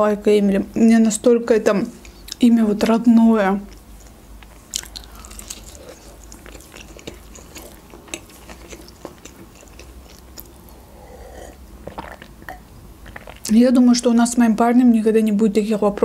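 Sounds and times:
chewing soft bread: 3.6 - 13.5
wet mouth clicks: 4.4 - 13.5.

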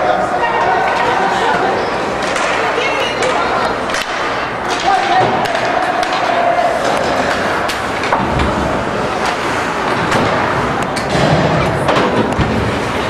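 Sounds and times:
crowd and rink noise: 0.0 - 13.0
sticks and puck clacking: 2.1 - 13.0.

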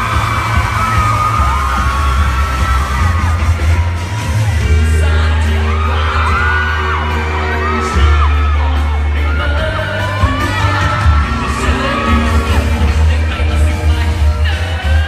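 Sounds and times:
fans screaming and whooping: 0.0 - 15.0
live pop music over loudspeakers: 0.0 - 15.0
man singing: 3.3 - 15.0.

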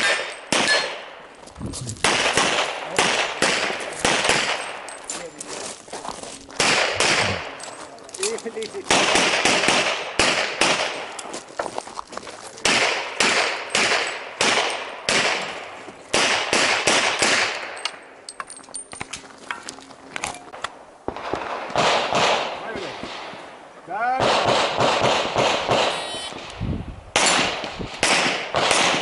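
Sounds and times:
gunshots echoing: 0.0 - 1.2, 2.0 - 4.9, 6.6 - 7.6, 8.8 - 11.2, 12.6 - 17.8, 21.1 - 23.4, 24.2 - 26.5, 27.1 - 29.0.

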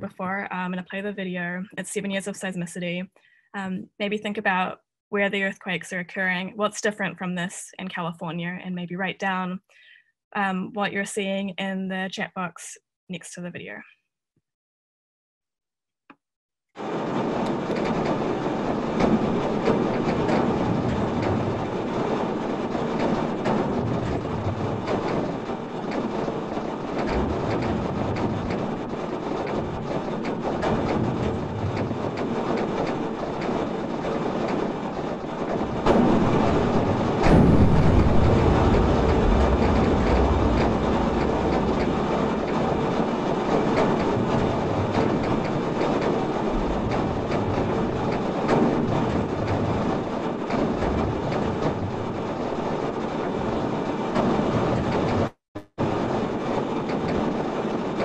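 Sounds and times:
crackling rumble of small pops: 16.8 - 58.0.

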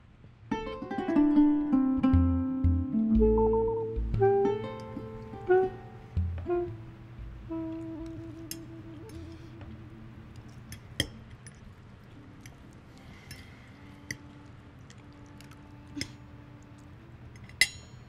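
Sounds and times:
people chewing: 7.2 - 17.6
cutlery clinking on plates: 17.4 - 18.0.

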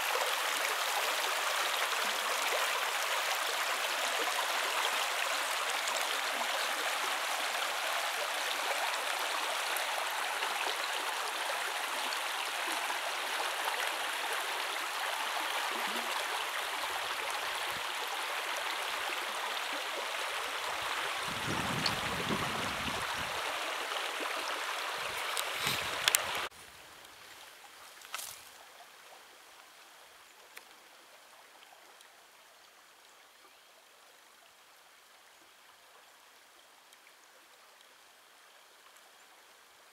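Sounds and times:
water rushing over stones: 0.0 - 26.5.

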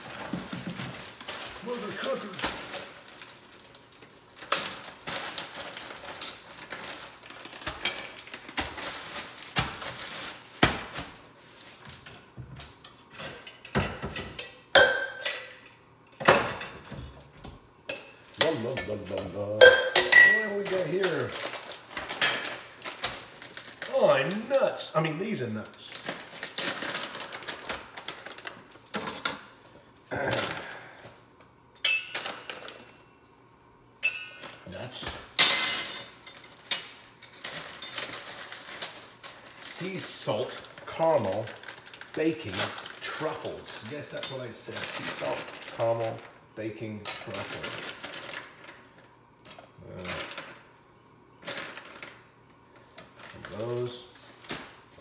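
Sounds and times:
plastic bags rustling: 0.0 - 13.5, 18.4 - 29.7, 36.2 - 49.2, 49.8 - 50.7, 51.4 - 55.0
utensils clattering on counter: 12.6 - 17.3, 17.9 - 23.2, 28.9 - 29.5, 31.8 - 33.0, 35.4 - 39.0, 47.0 - 48.4
ringing clink: 19.6 - 20.5.

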